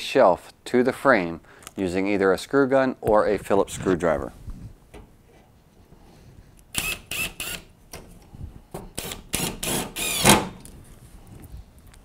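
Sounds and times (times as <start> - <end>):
screw gun driving screws: 6.7 - 8.0, 8.9 - 10.7.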